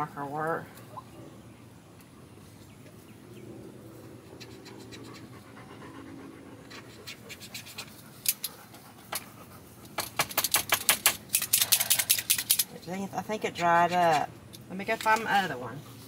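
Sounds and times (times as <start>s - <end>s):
marker scratching on plastic: 4.3s - 5.3s
dog panting: 4.4s - 10.0s.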